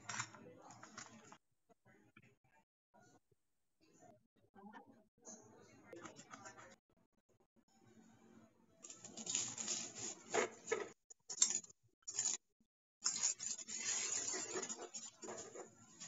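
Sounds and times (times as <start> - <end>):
utensils scraping a steel pan: 8.9 - 12.4, 13.0 - 16.0.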